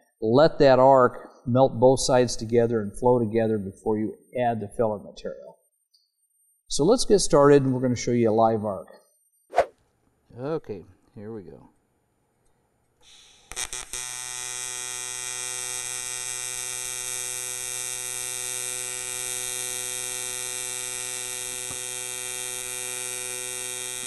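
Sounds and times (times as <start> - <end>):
welding arc hiss: 13.0 - 17.6, 21.0 - 24.0
welding arc crackles: 13.0 - 24.0
welding arc high-pitched buzz: 13.0 - 24.0.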